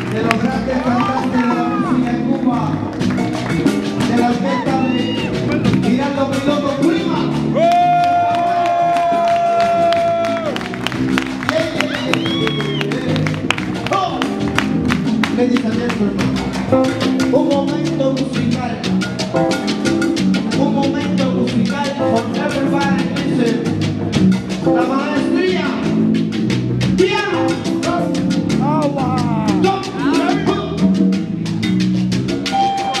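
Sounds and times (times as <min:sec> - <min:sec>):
congas and timbales: 0:00.0 - 0:33.0
salsa band playing: 0:00.0 - 0:33.0.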